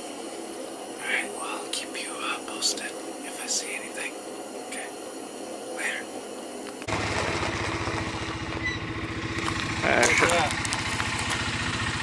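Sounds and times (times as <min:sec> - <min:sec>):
low hiss: 0:00.0 - 0:06.9
vehicle engine idling: 0:06.9 - 0:12.0.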